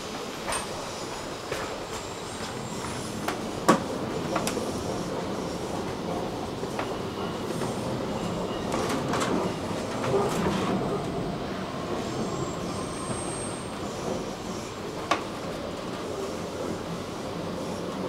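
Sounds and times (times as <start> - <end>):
train wheels rumbling on rails: 0.0 - 18.0
high wheel squeal: 11.9 - 14.8.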